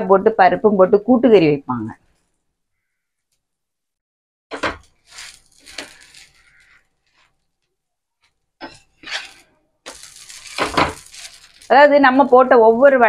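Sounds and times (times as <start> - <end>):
ladle scraping a griddle: 4.6 - 7.4, 8.6 - 11.6.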